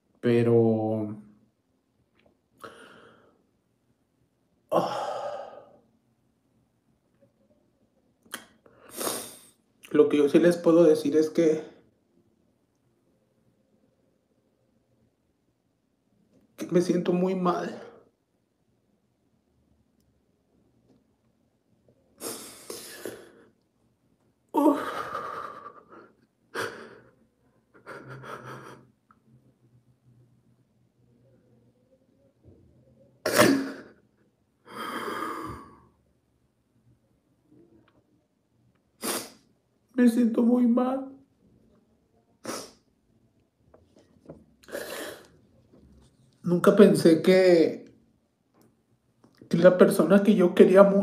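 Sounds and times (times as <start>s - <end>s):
short breath: 2.6s - 3.5s
woman sighing tearfully: 4.7s - 5.8s, 24.5s - 27.1s
woman sobbing: 24.6s - 27.1s.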